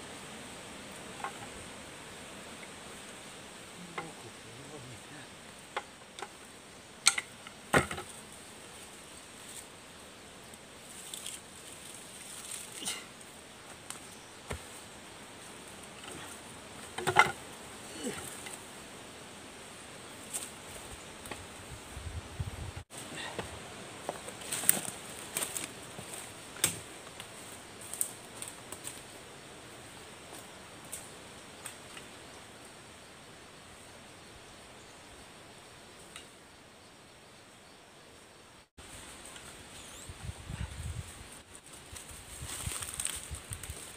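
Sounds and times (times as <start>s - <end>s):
faint hiss: 0.0s - 43.9s
footsteps on dry leaves and twigs: 23.0s - 29.1s, 40.9s - 43.9s.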